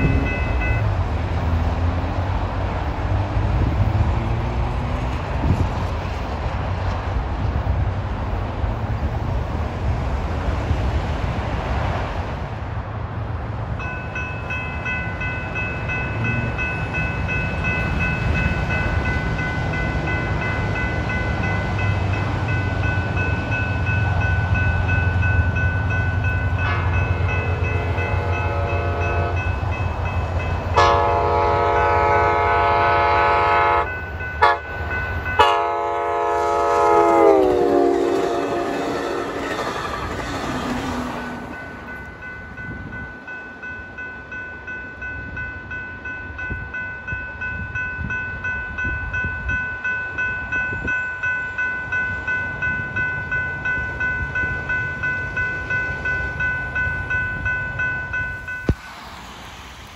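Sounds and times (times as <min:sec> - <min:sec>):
crossing bell ringing: 0:00.0 - 0:02.3, 0:13.8 - 0:59.1
train horn blasts: 0:26.5 - 0:29.6, 0:30.7 - 0:34.8, 0:35.4 - 0:39.4.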